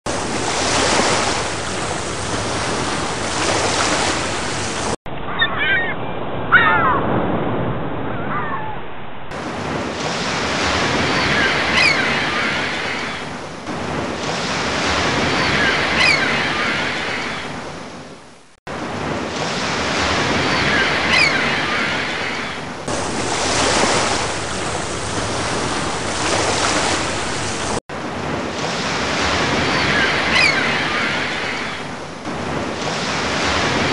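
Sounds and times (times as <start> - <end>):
underwater rushing hiss: 0.1 - 5.0, 22.9 - 27.8
faint squeaky chirps: 5.3 - 7.0.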